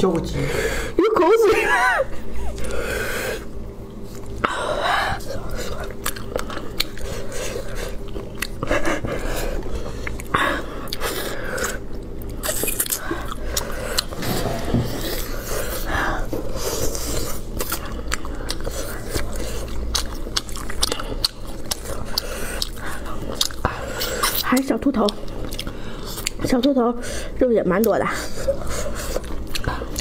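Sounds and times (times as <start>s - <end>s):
biting and chewing: 5.2s - 26.8s, 27.8s - 30.0s.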